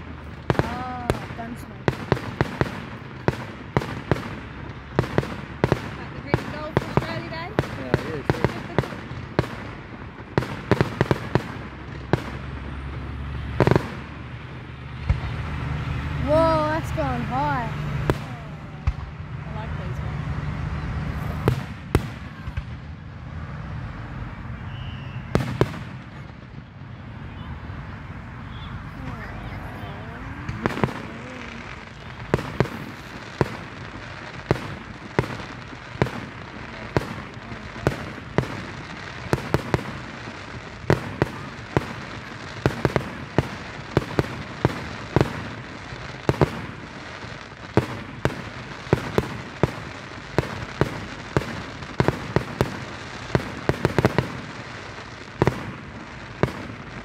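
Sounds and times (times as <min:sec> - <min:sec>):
fireworks bangs: 0:00.0 - 0:57.0.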